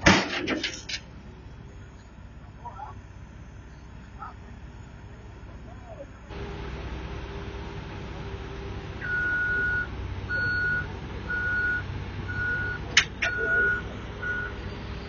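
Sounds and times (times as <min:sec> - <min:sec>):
diesel engine running: 0:00.0 - 0:15.0
backup alarm beeping: 0:09.0 - 0:14.6.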